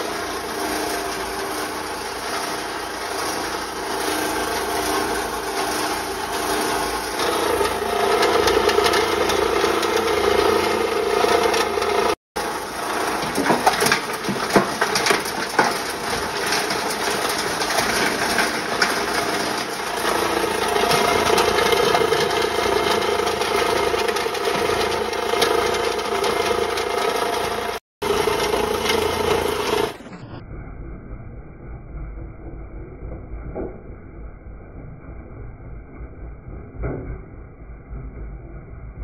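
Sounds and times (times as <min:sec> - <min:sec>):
grinder running: 0:00.0 - 0:30.3.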